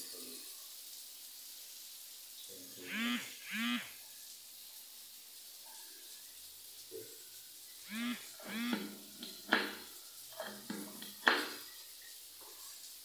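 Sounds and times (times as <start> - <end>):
faint hiss: 0.0 - 13.0
short voiced calls: 2.8 - 4.0, 7.8 - 8.8.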